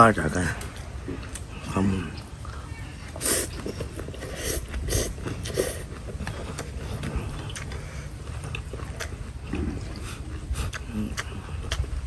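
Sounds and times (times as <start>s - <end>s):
man chewing: 3.1s - 12.0s
man slurping noodles: 3.2s - 6.0s.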